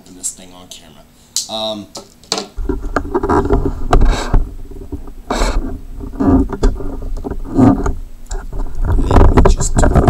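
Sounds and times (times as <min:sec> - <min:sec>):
bumps: 0:02.4 - 0:10.0.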